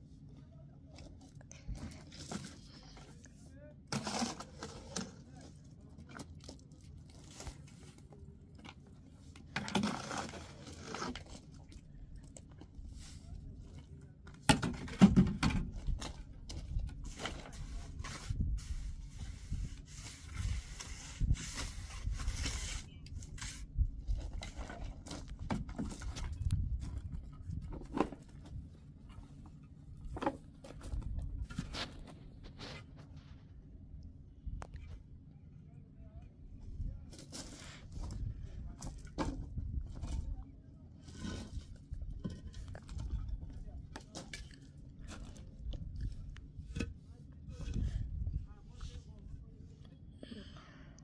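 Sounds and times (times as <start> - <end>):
objects scraping and knocking: 3.9 - 5.6, 7.1 - 11.7, 12.8 - 33.5, 41.0 - 49.0.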